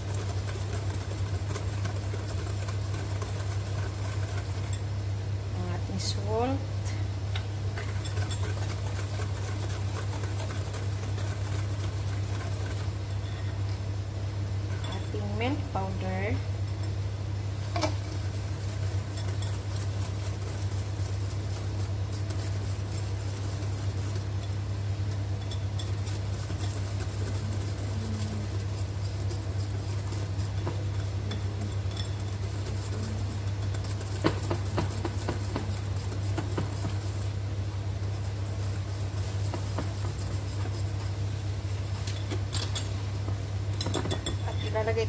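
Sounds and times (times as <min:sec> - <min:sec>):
wire whisk stirring batter: 0:00.0 - 0:06.6, 0:07.4 - 0:13.6, 0:14.6 - 0:45.0
steady low hum: 0:00.0 - 0:45.0
whisk clinking against glass: 0:00.1 - 0:04.8, 0:07.8 - 0:13.4, 0:17.8 - 0:21.7, 0:25.3 - 0:37.3, 0:42.0 - 0:43.0, 0:43.7 - 0:44.7.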